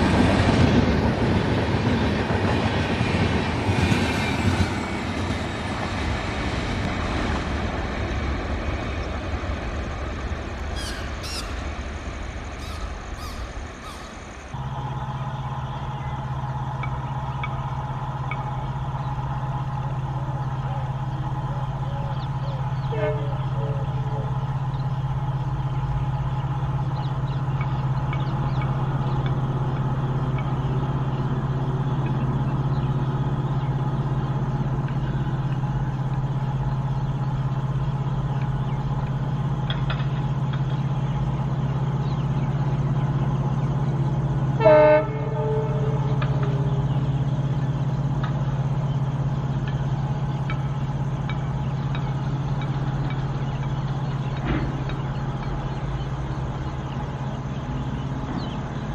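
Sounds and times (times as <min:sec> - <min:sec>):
locomotive engine drone: 0:00.0 - 0:58.9
locomotive air horn blast: 0:22.8 - 0:23.8, 0:44.6 - 0:46.7.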